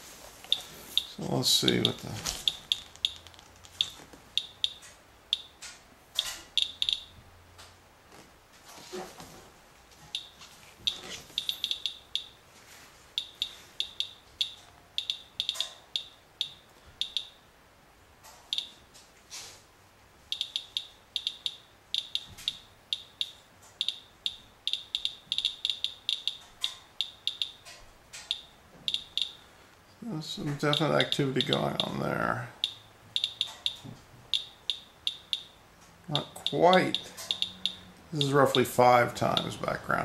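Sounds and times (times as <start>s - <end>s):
geiger counter chirps: 0.5s - 5.6s, 6.6s - 7.2s, 10.1s - 12.4s, 13.2s - 17.4s, 20.3s - 27.6s, 28.3s - 29.4s, 30.7s - 32.0s, 32.6s - 38.7s.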